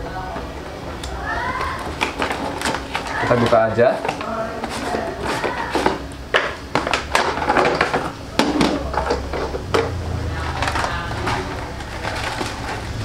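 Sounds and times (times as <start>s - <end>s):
cardboard scraping and rustling: 1.6s - 6.1s, 10.3s - 13.0s.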